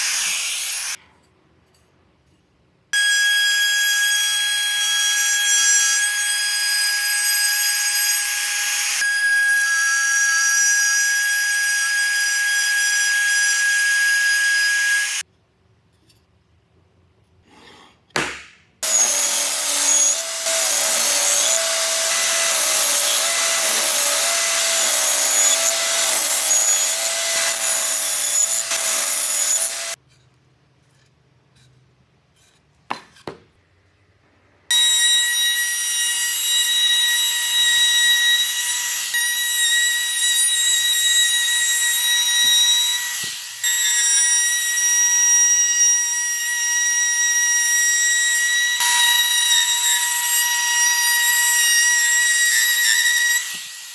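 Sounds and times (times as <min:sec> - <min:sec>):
power tool cutting wood: 0:00.0 - 0:01.0, 0:03.0 - 0:15.2, 0:18.8 - 0:30.0, 0:34.7 - 0:53.9
router whining: 0:18.8 - 0:30.0.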